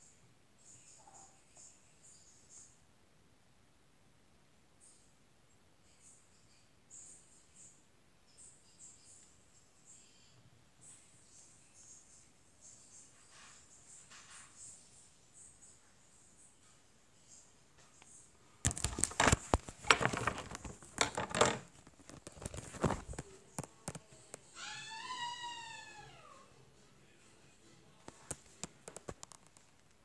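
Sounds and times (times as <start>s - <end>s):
phone handling rustling: 18.7s - 23.3s.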